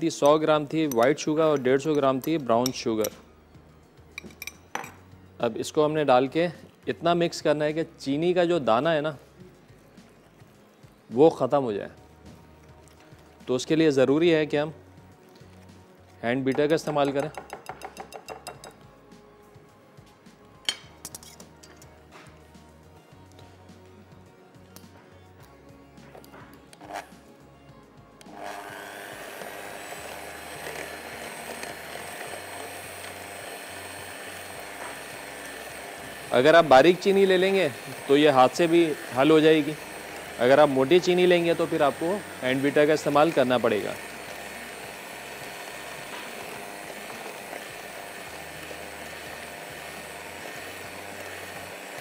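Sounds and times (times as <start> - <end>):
electric hand mixer running: 28.2 - 52.0.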